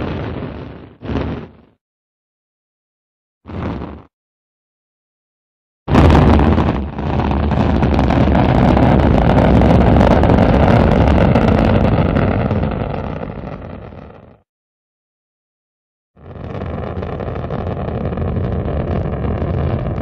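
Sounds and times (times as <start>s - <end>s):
rocket engine roar: 5.9s - 14.2s, 16.2s - 20.0s.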